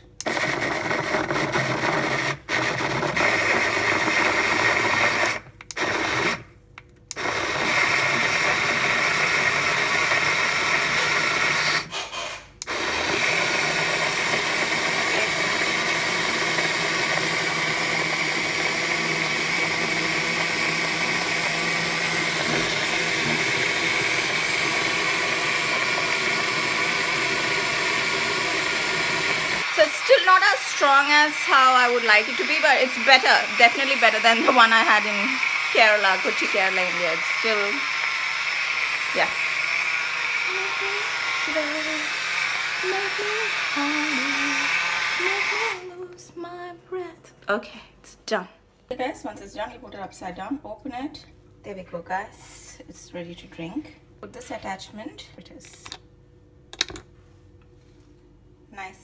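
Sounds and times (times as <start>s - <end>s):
blender motor running: 0.0s - 6.5s, 7.1s - 46.0s.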